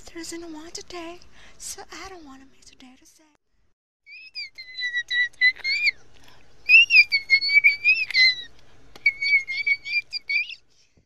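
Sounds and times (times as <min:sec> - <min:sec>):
man imitating bird whistle: 0:04.1 - 0:06.0, 0:06.7 - 0:10.6.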